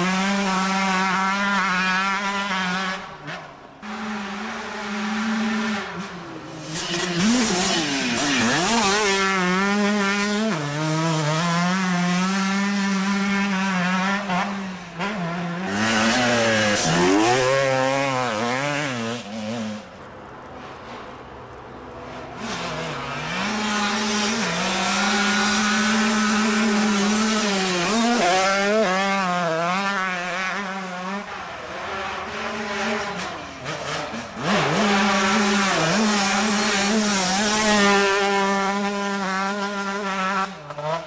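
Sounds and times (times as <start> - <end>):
motocross bike engine revving: 0.0 - 20.0, 22.2 - 41.0.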